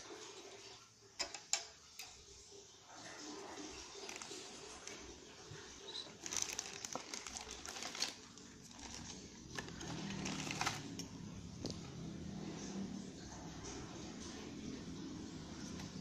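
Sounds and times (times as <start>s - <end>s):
faint low hum: 0.6s - 16.0s
plastic bags rustling: 3.0s - 11.9s.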